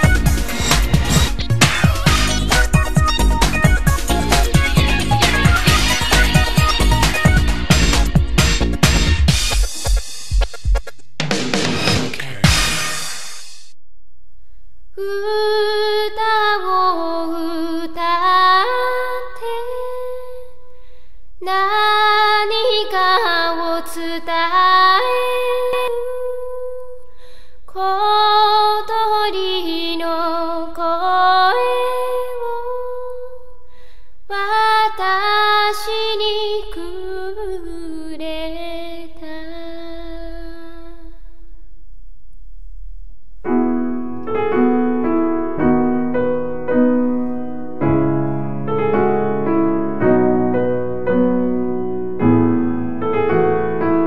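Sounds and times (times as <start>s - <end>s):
woman singing unaccompanied: 15.0s - 20.6s, 21.4s - 27.1s, 27.7s - 33.6s, 34.3s - 41.3s.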